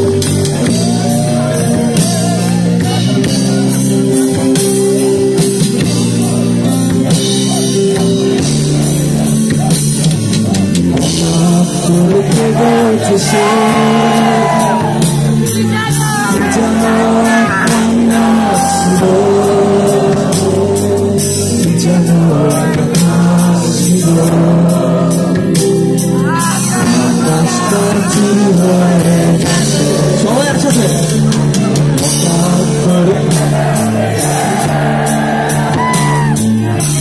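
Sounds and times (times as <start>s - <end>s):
keyboards: 0.0s - 37.0s
live rock band playing: 0.0s - 37.0s
person singing: 10.9s - 31.2s.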